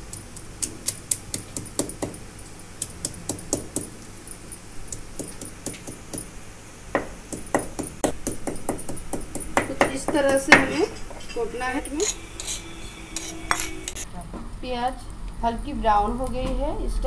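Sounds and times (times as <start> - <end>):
stone pounding on grinding stone: 0.0 - 2.2, 2.8 - 3.9, 4.9 - 6.3, 6.9 - 14.0.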